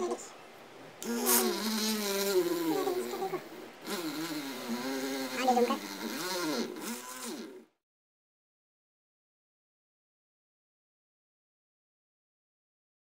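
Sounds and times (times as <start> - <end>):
electric motor whining: 1.0 - 7.8.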